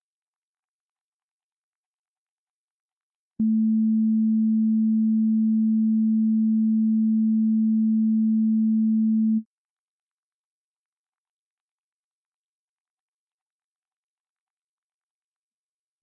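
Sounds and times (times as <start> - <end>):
pure sine tone: 3.4 - 9.4.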